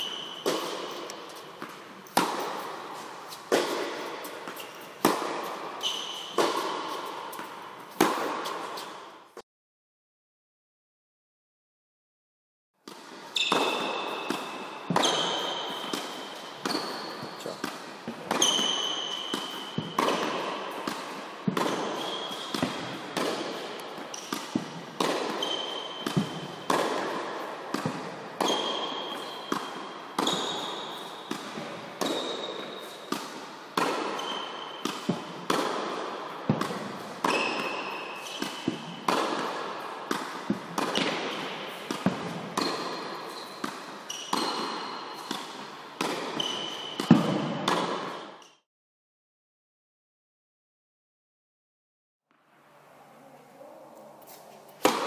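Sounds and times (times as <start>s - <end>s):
tennis ball hit by rackets: 0.0s - 9.1s, 12.8s - 48.5s, 54.8s - 55.0s.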